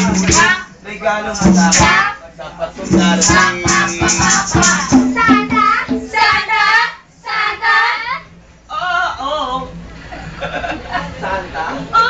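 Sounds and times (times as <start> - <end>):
percussive strikes: 0.0 - 0.6, 1.4 - 2.1, 2.8 - 6.5
shaker rattle: 0.0 - 0.7, 1.3 - 2.2, 2.8 - 5.6
people singing over music: 0.0 - 2.2, 2.8 - 8.3.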